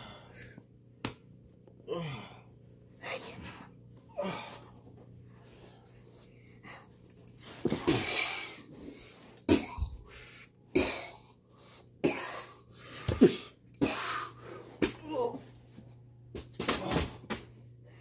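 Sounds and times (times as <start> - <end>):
breathy huffs and grunts: 1.8 - 4.8, 7.6 - 15.4.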